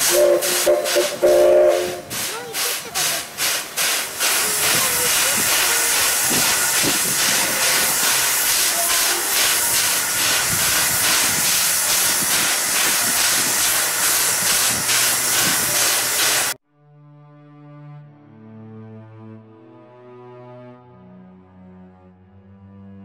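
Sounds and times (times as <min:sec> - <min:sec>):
locomotive steam hissing: 0:00.0 - 0:16.6.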